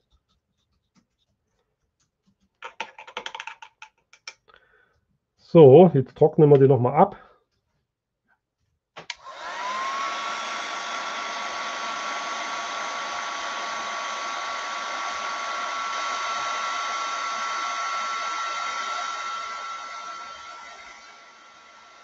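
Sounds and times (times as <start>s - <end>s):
heat tool fan blowing: 9.1s - 22.0s.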